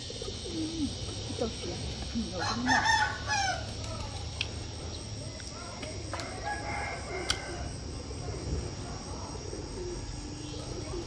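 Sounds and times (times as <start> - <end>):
rooster crowing: 2.4 - 3.7, 6.2 - 7.8.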